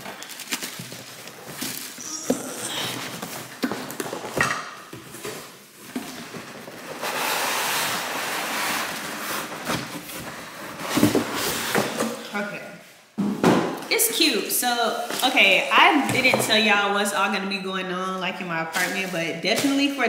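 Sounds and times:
packaging rustling: 0.0s - 4.4s.

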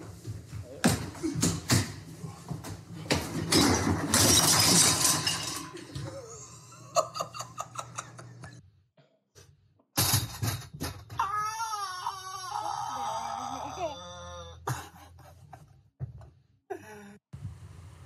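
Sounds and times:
glass breaking on tiled floor: 3.5s - 6.0s.

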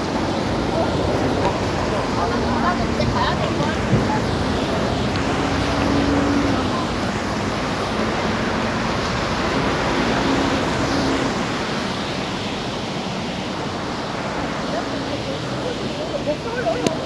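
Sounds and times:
passing vehicle engines: 0.0s - 17.0s
tyres hissing on wet road: 0.0s - 17.0s.

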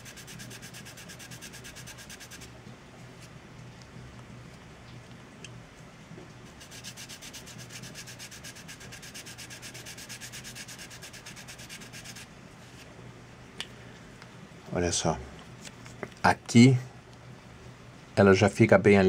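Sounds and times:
sanding stick scraping plastic: 0.0s - 2.5s, 6.5s - 12.3s.

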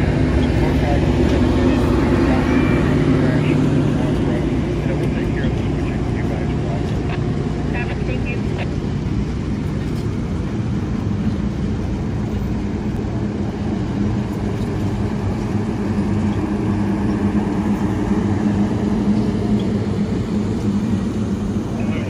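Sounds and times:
low drone: 0.0s - 22.0s.

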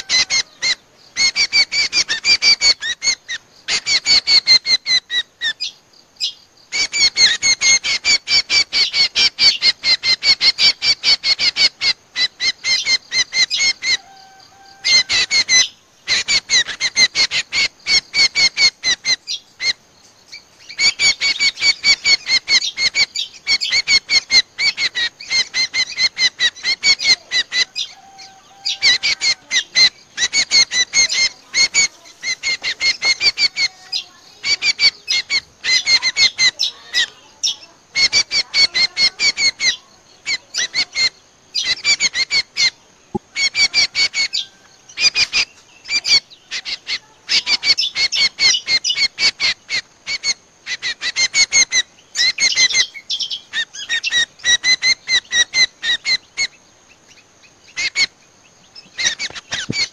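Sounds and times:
sharp bird chirping: 0.0s - 59.9s
warbling bird phrase: 12.2s - 19.0s, 20.8s - 49.8s.

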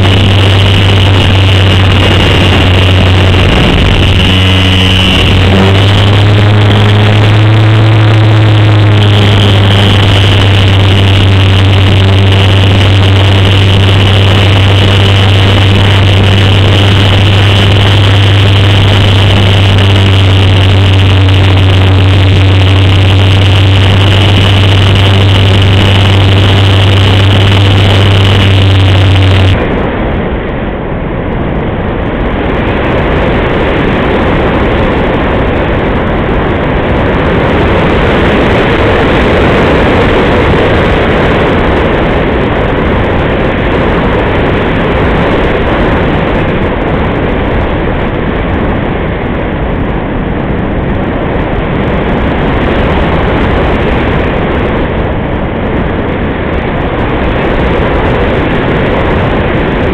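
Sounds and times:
electric motor and propeller hum: 0.0s - 29.7s
rush of airflow: 0.0s - 59.9s.

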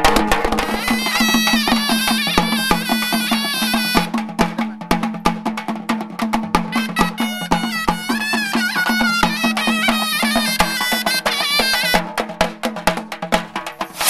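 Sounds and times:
fast hand-drum strokes: 0.0s - 14.0s
wavering horn melody: 0.6s - 4.7s, 6.7s - 12.0s.

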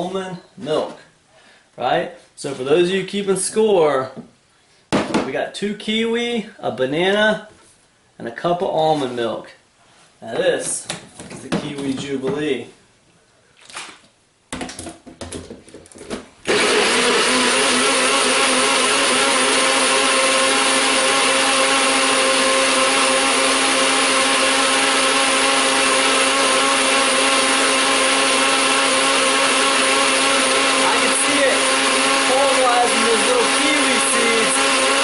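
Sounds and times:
blender motor running: 16.5s - 35.0s.

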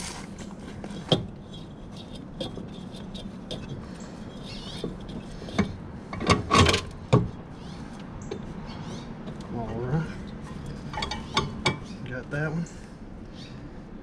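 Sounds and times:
steady low hum: 0.0s - 14.0s
knocks and clatter on mower deck: 4.7s - 7.4s.

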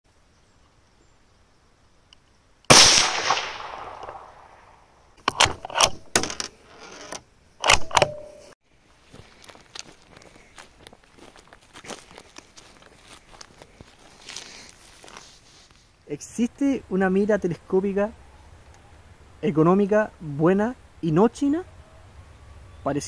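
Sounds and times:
rifle shot with echo: 2.7s - 4.8s
rifle action clicking: 7.6s - 8.3s.

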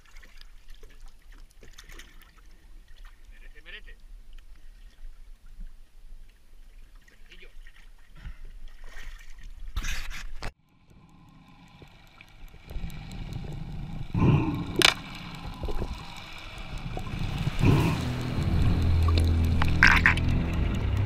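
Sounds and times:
faint underwater clicks: 0.0s - 21.0s
muffled underwater rushing: 10.8s - 21.0s
water splashing at surface: 10.9s - 21.0s.

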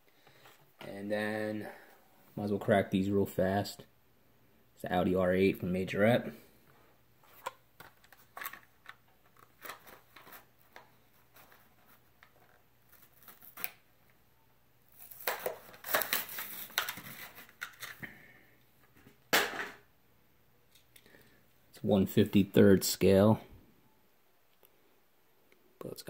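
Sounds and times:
plastic crinkling and cardboard tearing: 7.8s - 13.8s, 14.9s - 18.0s.

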